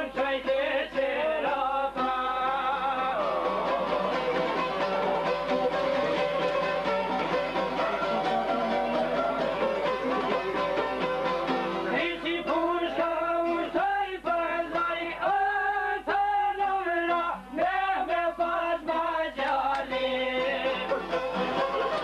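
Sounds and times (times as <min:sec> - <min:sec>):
man singing: 0:00.0 - 0:04.9, 0:11.9 - 0:21.2
plucked long-necked lute: 0:00.3 - 0:13.7, 0:19.8 - 0:22.0.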